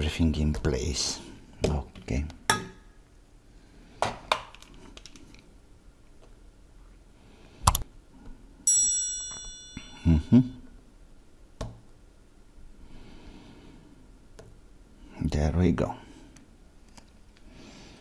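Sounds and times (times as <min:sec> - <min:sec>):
high ringing chime: 0:08.7 - 0:10.6.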